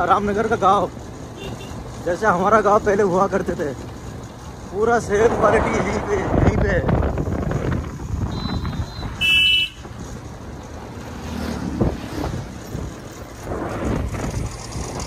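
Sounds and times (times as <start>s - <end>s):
moving vehicle rumble and road noise: 0.0s - 15.0s
vehicle horn beep: 8.3s - 9.8s.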